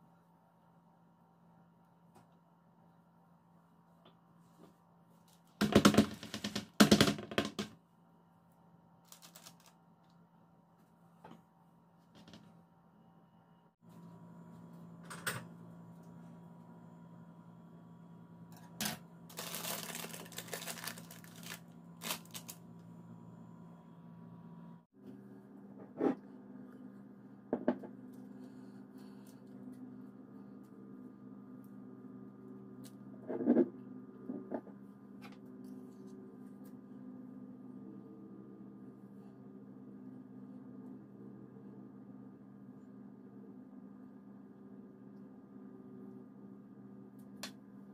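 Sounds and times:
faint hum: 0:00.0 - 0:47.9
parchment paper crinkling: 0:09.0 - 0:09.9, 0:19.3 - 0:22.6.

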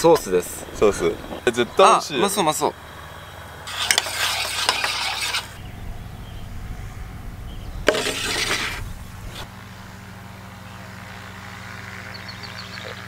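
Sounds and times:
steady low hum: 0:00.0 - 0:13.0
metal pan clanking and scraping: 0:03.7 - 0:05.5, 0:07.9 - 0:08.8.

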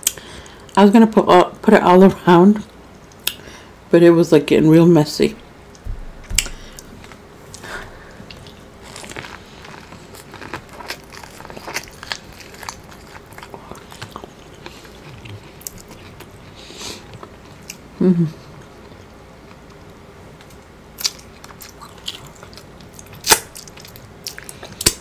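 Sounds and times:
person chewing corn crunches: 0:06.2 - 0:17.9, 0:18.5 - 0:25.0.

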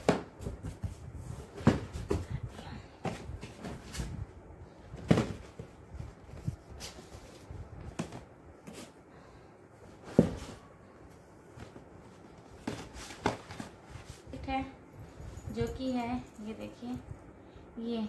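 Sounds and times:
cardboard boxes knocking and rustling: 0:00.0 - 0:02.4, 0:05.0 - 0:08.9, 0:10.0 - 0:10.7, 0:12.5 - 0:14.1.

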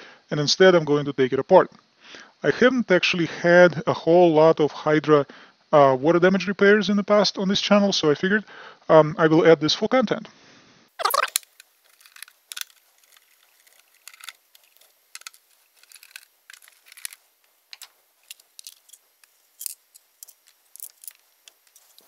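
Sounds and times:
plastic faceplate being handled: 0:11.0 - 0:22.0
screwdriver clicks and scrapes: 0:11.0 - 0:22.0.

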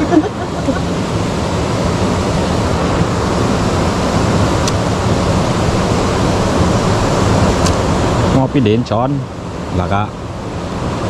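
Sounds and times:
river water rushing: 0:00.0 - 0:08.6.

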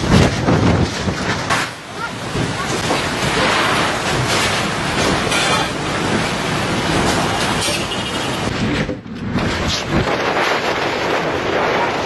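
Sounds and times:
driving rain against glass: 0:00.0 - 0:07.7
storm winds against glass: 0:00.0 - 0:12.0.

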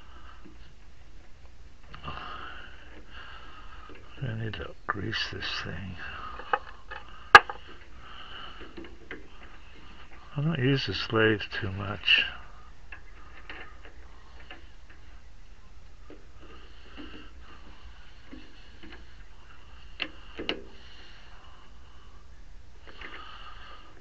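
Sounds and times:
metal clicks and taps at a lathe: 0:06.4 - 0:07.6.

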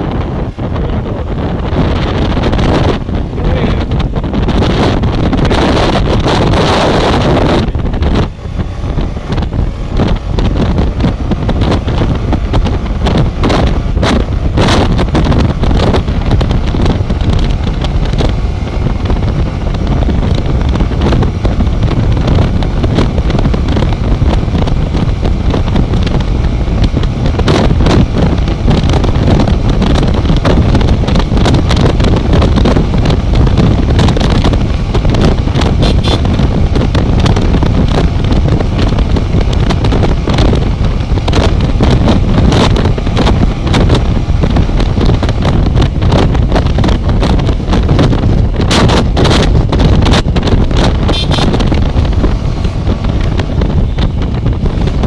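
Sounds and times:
motorcycle engine at high revs: 0:00.0 - 0:55.0
wind buffeting microphone: 0:00.0 - 0:55.0.

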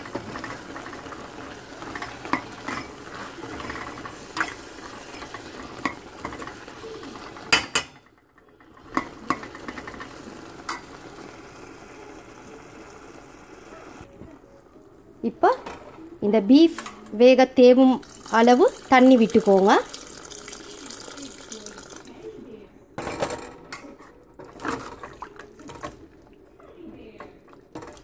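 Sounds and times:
metal ladle scraping a pot: 0:00.0 - 0:07.6
masala sizzling in a pot: 0:00.0 - 0:22.2.

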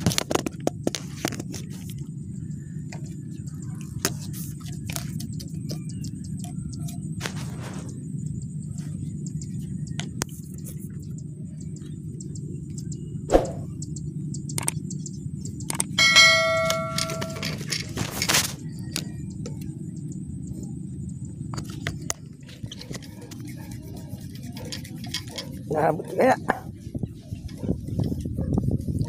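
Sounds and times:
scattered clicks: 0:13.7 - 0:25.6
bright metallic ding: 0:16.0 - 0:17.6.

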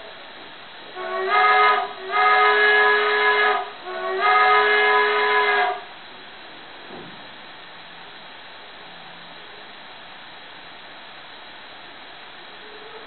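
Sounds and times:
faint steady hiss: 0:00.0 - 0:13.0
chime steam whistle blasts: 0:01.0 - 0:05.9.

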